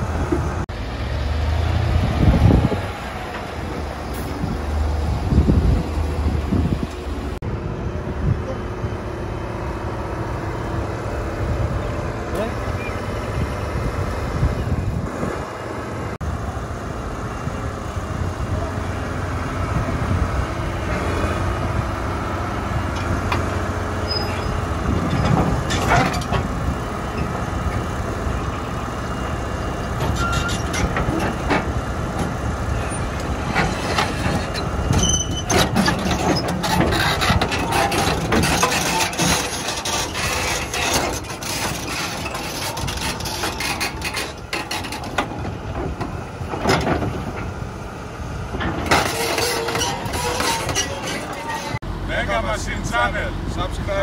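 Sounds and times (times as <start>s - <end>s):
excavator diesel engine under load: 0.0s - 54.0s
steel tracks clanking on deck: 22.9s - 47.8s, 48.4s - 51.8s.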